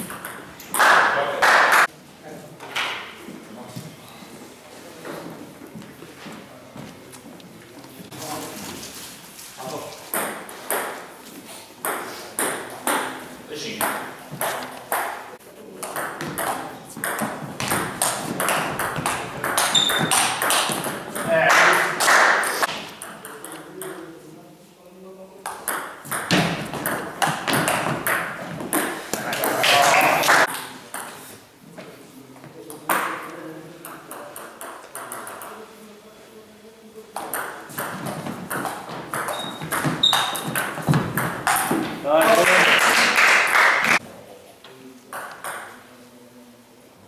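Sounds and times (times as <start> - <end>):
brief high squeak: 39.3 - 40.4.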